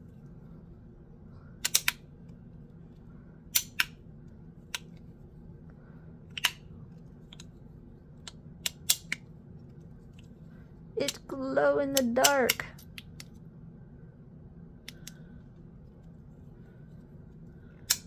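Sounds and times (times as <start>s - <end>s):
magnetic fidget toy clicking: 1.6s - 2.0s.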